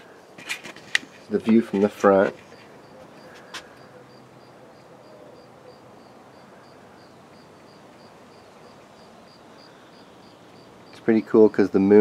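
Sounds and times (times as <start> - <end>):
low outdoor hiss: 0.0 - 12.0
cricket chirping: 2.5 - 11.0.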